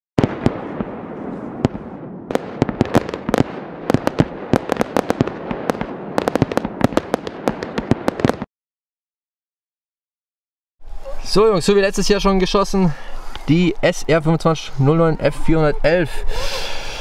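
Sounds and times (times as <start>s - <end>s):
fireworks cracks and bangs: 0.2s - 8.5s
fireworks hiss: 16.3s - 17.0s.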